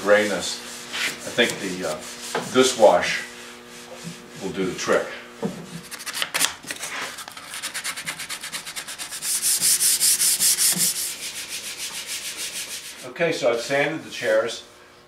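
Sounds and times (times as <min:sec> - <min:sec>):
sandpaper scratching wood: 0:00.0 - 0:04.2, 0:05.8 - 0:13.1.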